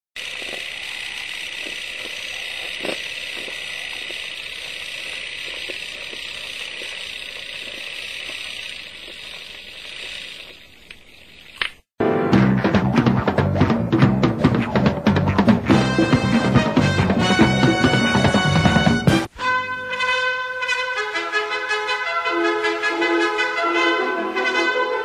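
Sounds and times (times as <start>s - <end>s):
old film hiss with crackles: 0.2s - 11.9s
music with drum hits: 12.0s - 19.3s.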